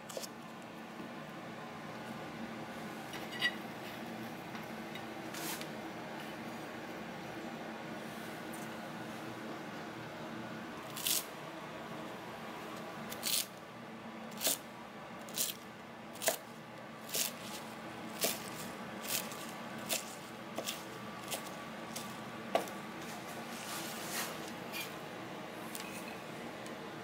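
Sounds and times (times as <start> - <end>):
knife chopping herbs on board: 18.2 - 22.7.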